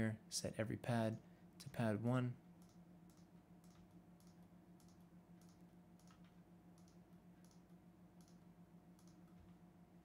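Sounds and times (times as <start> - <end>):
low electrical hum: 0.0 - 10.0
faint computer mouse clicks: 2.6 - 7.6, 8.2 - 8.4, 9.0 - 9.2.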